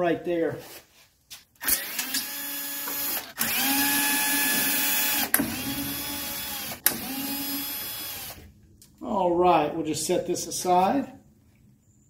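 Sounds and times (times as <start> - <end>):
power driver motor whining: 1.6 - 8.5.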